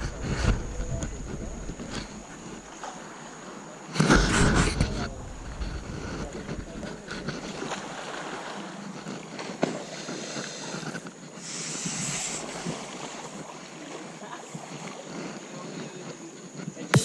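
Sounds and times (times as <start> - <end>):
wind on microphone: 0.0 - 2.7, 4.0 - 8.2
water sloshing and splashing: 0.0 - 16.0.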